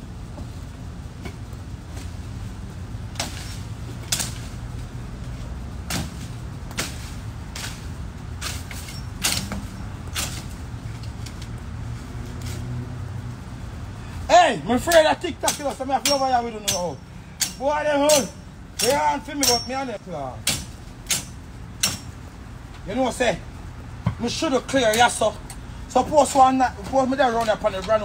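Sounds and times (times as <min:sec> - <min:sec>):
low steady rumble: 0:00.0 - 0:28.0
machete chopping branches: 0:03.0 - 0:12.8, 0:14.8 - 0:22.2.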